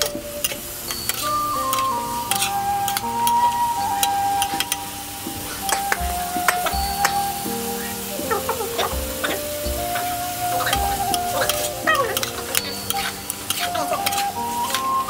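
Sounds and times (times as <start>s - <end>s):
food sizzling in a pan: 0.0s - 15.0s.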